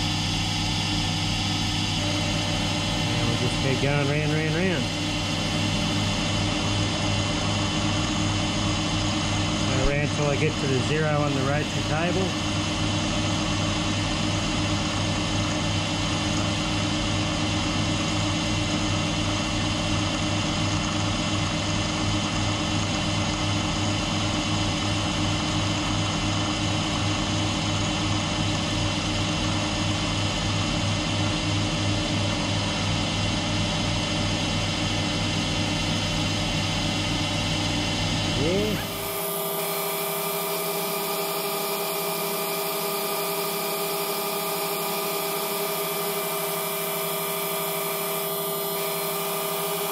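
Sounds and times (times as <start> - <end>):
cutting whine: 0.0 - 15.4, 34.4 - 49.9
mill drill motor humming: 0.0 - 49.9.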